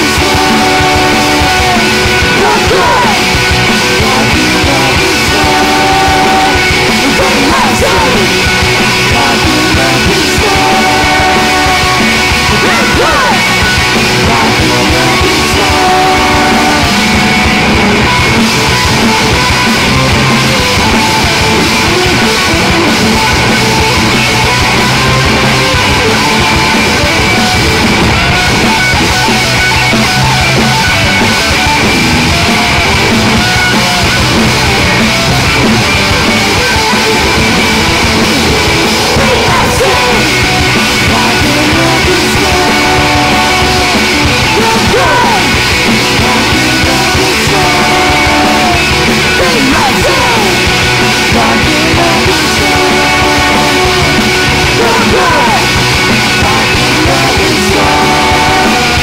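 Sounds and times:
person singing: 0.0s - 17.4s, 32.3s - 59.0s
distorted electric guitars: 0.0s - 59.0s
drums: 0.0s - 59.0s.

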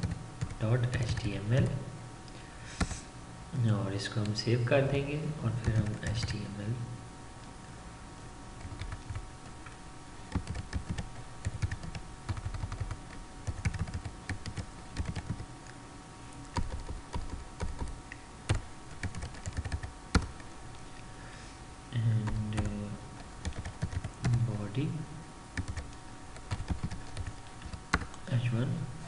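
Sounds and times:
typing on computer keyboard: 0.0s - 1.3s, 5.6s - 6.2s, 8.6s - 9.2s, 10.3s - 15.5s, 16.5s - 17.9s, 18.5s - 20.4s, 23.4s - 24.4s, 25.6s - 28.2s.

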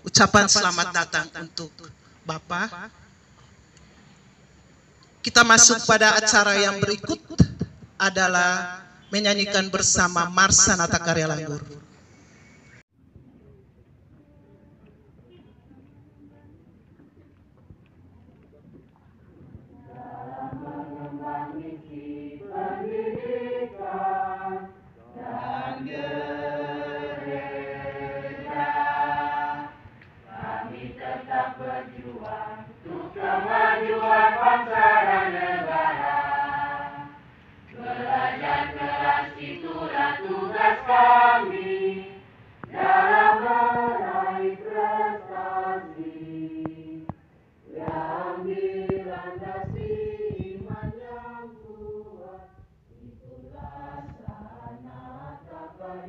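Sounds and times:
large group singing: 19.8s - 47.1s, 47.7s - 56.0s.

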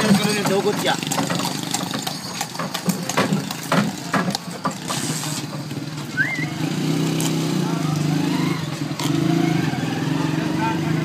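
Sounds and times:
cart and harness knocking: 0.0s - 6.2s
hooves clattering: 0.0s - 9.3s.

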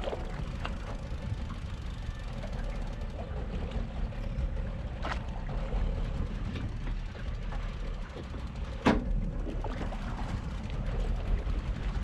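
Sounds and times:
boat engine rumble: 0.0s - 12.0s
water rushing past hull: 0.0s - 12.0s.

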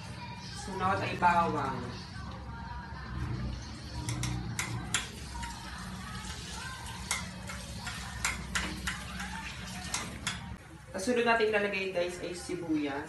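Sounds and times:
metal spoon clinking on bowl: 4.0s - 5.8s, 7.0s - 10.6s
faint oil sizzle: 4.9s - 10.5s.

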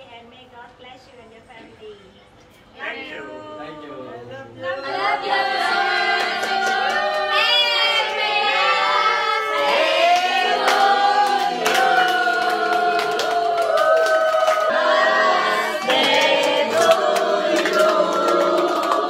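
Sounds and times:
group of people singing: 2.8s - 19.0s
hand claps: 6.1s - 7.4s, 9.6s - 14.8s, 15.8s - 19.0s.

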